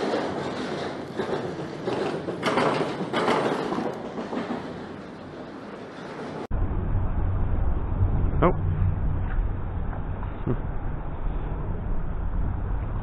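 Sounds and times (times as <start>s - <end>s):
low rumble: 6.5s - 13.0s.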